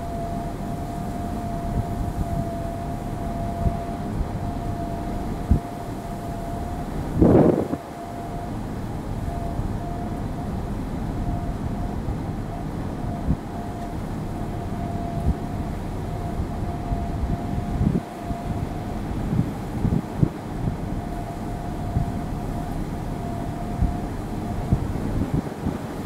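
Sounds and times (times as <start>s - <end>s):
thin steady tone: 0.0s - 26.0s
wind rumbling on microphone: 0.0s - 26.0s
low thumps from gusts: 1.2s - 25.9s.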